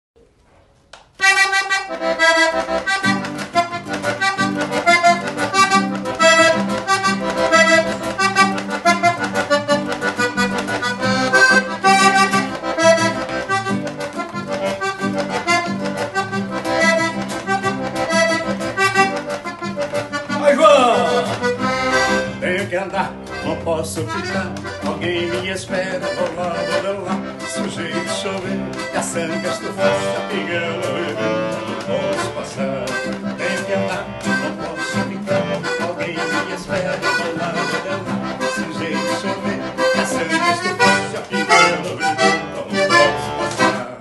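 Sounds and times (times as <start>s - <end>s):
low accompaniment: 0.2s - 44.0s
acoustic guitar strumming: 1.2s - 44.0s
button accordion playing: 1.2s - 44.0s.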